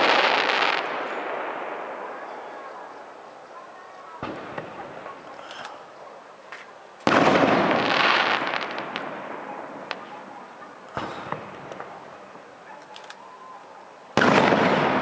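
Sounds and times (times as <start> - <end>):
firework bangs: 0.0 - 3.0, 4.1 - 5.3, 7.0 - 12.5, 14.1 - 15.0
firework crackling: 0.0 - 3.4, 7.0 - 12.6, 14.1 - 15.0.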